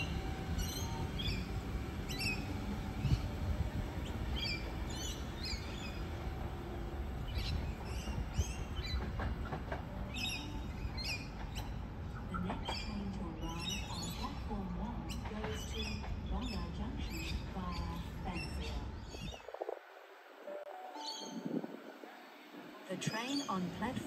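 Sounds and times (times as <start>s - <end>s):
electric train rumbling: 0.0s - 24.0s
small birds chirping: 0.5s - 6.4s, 10.1s - 19.7s.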